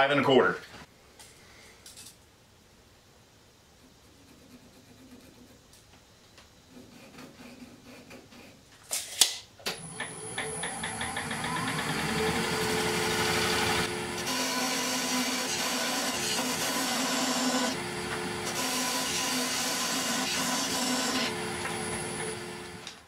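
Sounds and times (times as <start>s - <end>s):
tool scraping spinning wood: 6.6s - 8.7s, 9.8s - 22.9s
wood lathe spinning hum: 9.7s - 23.0s.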